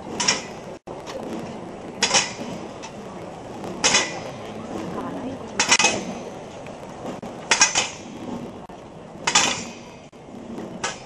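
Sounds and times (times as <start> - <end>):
crowd murmur: 0.0 - 7.5.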